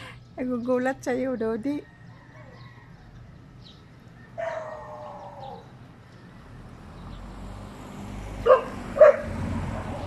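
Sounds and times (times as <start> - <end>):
rooster crowing: 1.8 - 3.3.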